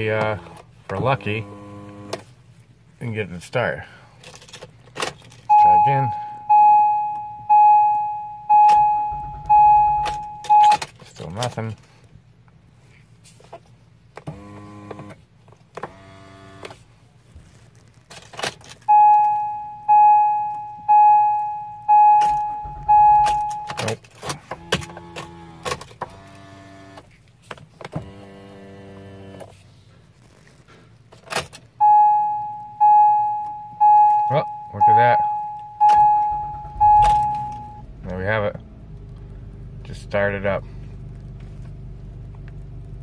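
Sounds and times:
dashboard warning chime: 0:05.5 - 0:10.9, 0:18.9 - 0:24.0, 0:31.8 - 0:38.2.

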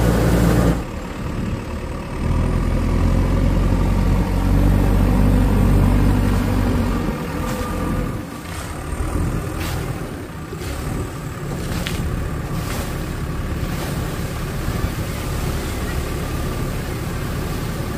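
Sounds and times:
diesel engine running: 0:00.0 - 0:17.9
water splashing: 0:10.6 - 0:17.9.

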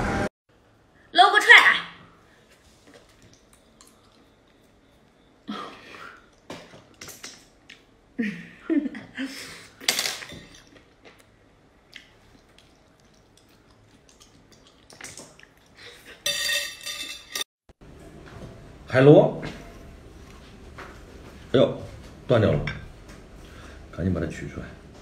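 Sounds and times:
chewing: 0:03.0 - 0:05.2, 0:10.6 - 0:16.1
wet slurping: 0:11.9 - 0:15.8.

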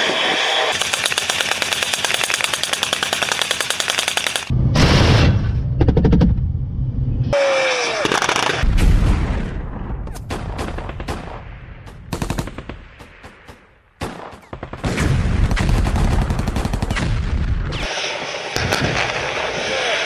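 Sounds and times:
falling whine: 0:00.0 - 0:00.8
automatic weapon fire: 0:00.7 - 0:04.5, 0:08.0 - 0:09.6, 0:10.2 - 0:17.3.

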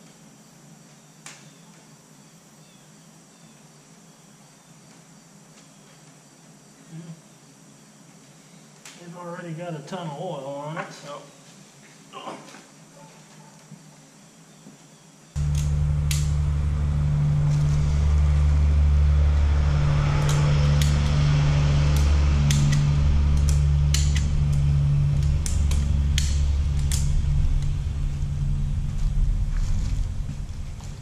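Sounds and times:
loud low rumble: 0:15.4 - 0:31.0.

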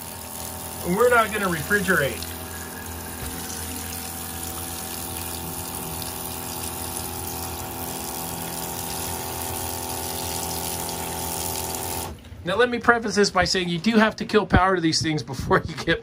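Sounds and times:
water spraying hiss: 0:00.0 - 0:12.1
mechanical hum: 0:00.0 - 0:16.0.

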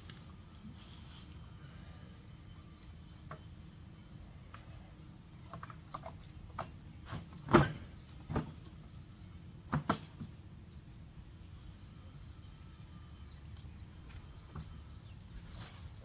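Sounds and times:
grass catcher knocks and clunks: 0:05.5 - 0:08.7, 0:09.7 - 0:10.4.

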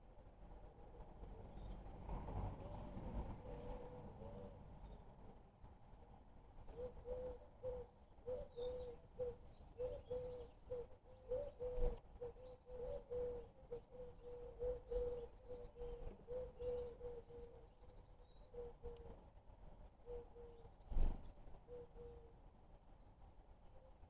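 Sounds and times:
pigeon cooing: 0:02.6 - 0:04.7, 0:06.7 - 0:17.7.

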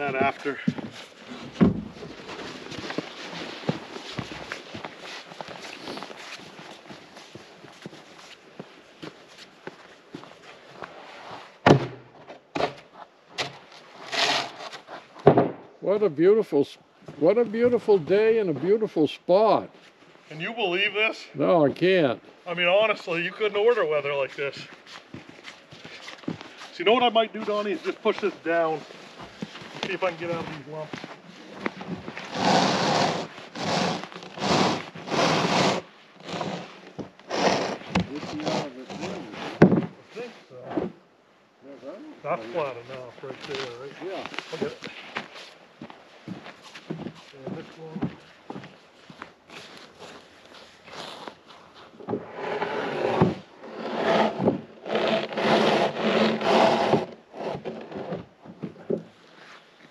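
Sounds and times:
footsteps crunching in snow: 0:00.0 - 0:11.6, 0:23.1 - 0:39.4, 0:42.9 - 0:52.0.

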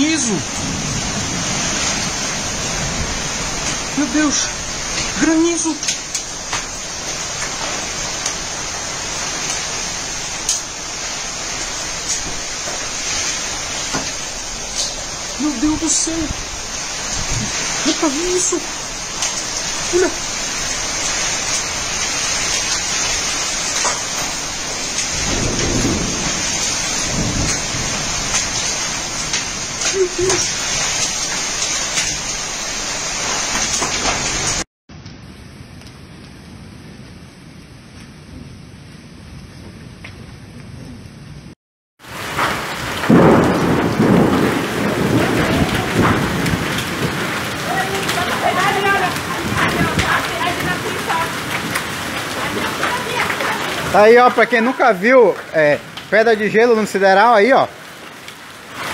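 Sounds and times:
low rumbling: 0:00.0 - 0:33.5
heavy rain and hail: 0:00.0 - 0:58.9.

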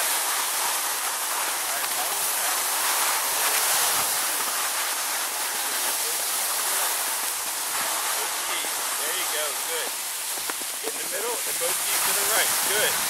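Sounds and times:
skis sliding over snow: 0:00.0 - 0:13.0.

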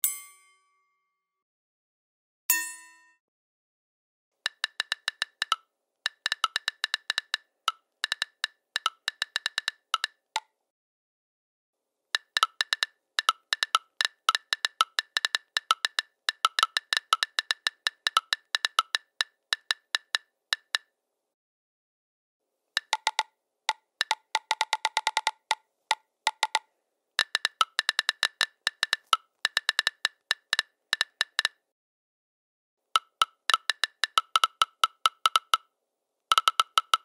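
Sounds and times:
touchscreen keyboard taps: 0:04.5 - 0:10.2, 0:12.2 - 0:20.8.

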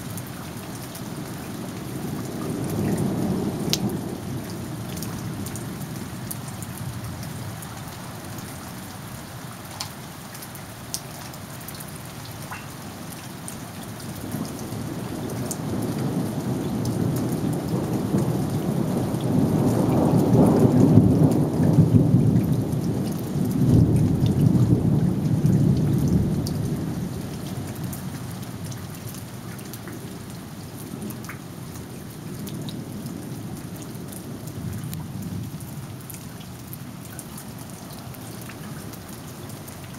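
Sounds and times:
steady rain falling: 0:00.0 - 0:39.9
rain drop ticks: 0:03.7 - 0:05.6, 0:09.6 - 0:24.4, 0:31.0 - 0:32.8, 0:33.5 - 0:39.9.

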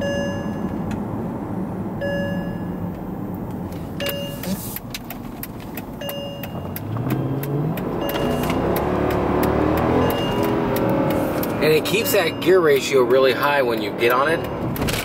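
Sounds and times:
seatbelt warning chime: 0:00.0 - 0:00.9, 0:02.0 - 0:03.0, 0:04.0 - 0:04.6, 0:06.0 - 0:14.8
road and engine noise: 0:00.0 - 0:15.0
car engine revving: 0:05.6 - 0:15.0.

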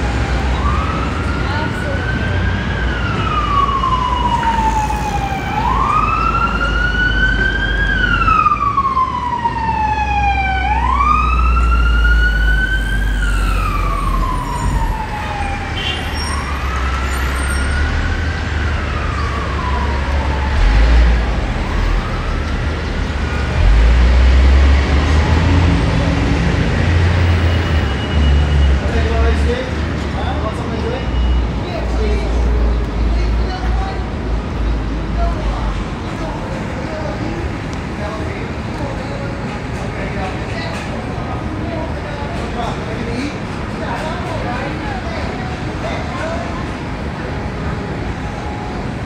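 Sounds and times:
emergency siren wailing: 0:00.0 - 0:29.4
low rumble of street traffic: 0:00.0 - 0:49.0.

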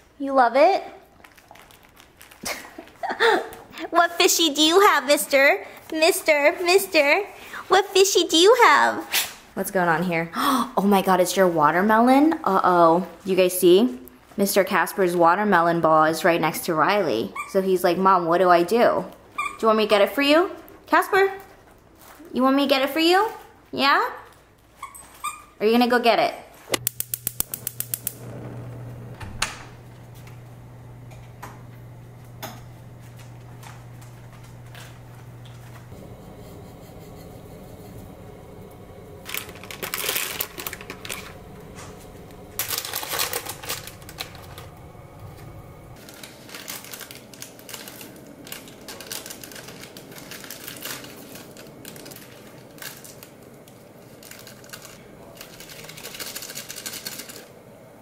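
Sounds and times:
plastic food packet crinkling: 0:01.0 - 0:03.6, 0:39.2 - 0:44.8, 0:46.0 - 0:57.5
low steady hum: 0:26.7 - 0:55.4.

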